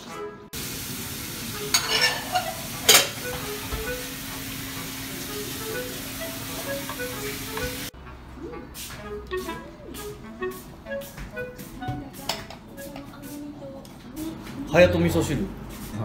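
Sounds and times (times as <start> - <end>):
light background music: 0.0 - 0.6, 1.5 - 15.8.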